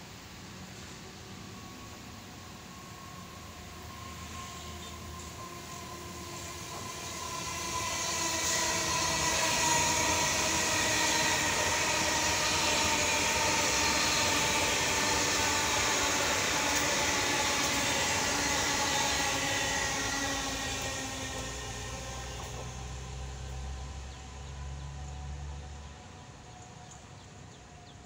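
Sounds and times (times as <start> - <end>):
electric train rushing past: 0.0 - 28.0.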